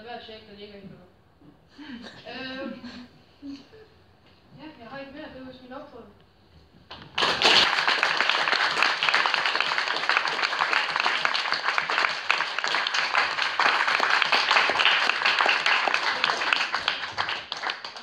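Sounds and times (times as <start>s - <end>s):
audience applauding: 6.9s - 18.0s.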